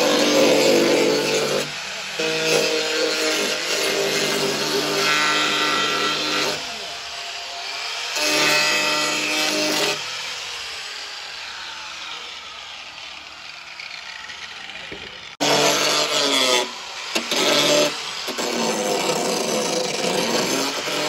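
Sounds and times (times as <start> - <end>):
angle grinder grinding metal: 0.0 - 21.0
grinder disc winding down: 10.5 - 15.4.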